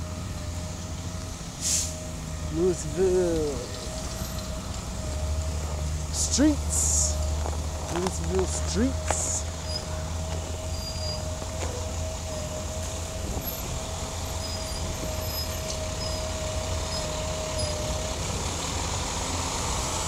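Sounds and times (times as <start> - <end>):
motor vehicle engine rumble: 0.0 - 20.0.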